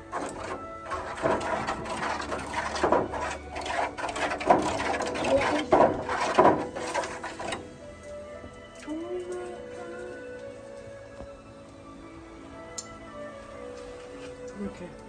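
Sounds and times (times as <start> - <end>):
stick scraping foil pan: 0.0 - 7.8.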